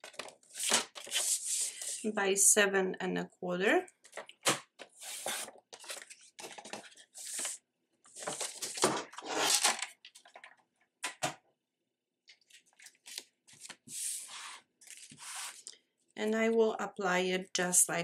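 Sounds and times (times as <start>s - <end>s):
paper rustling and crackling: 0.0s - 2.0s, 4.1s - 10.6s.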